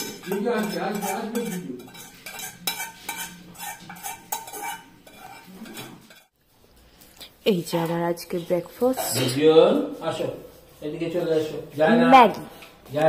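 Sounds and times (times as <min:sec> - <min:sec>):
metal utensil clinking on dishware: 0:00.0 - 0:06.3, 0:08.9 - 0:09.4.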